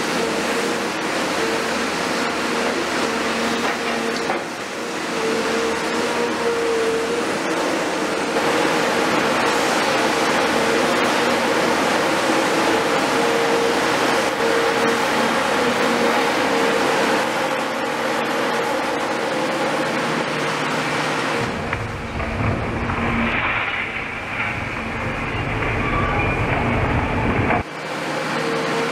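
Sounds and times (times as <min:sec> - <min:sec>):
diesel excavator engine running: 0:00.0 - 0:28.9
steady high whine: 0:06.8 - 0:27.7.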